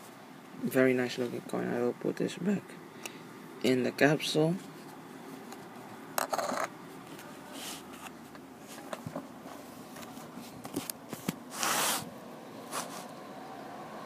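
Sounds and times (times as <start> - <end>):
rustling scrape: 6.3 - 12.1, 12.7 - 13.1.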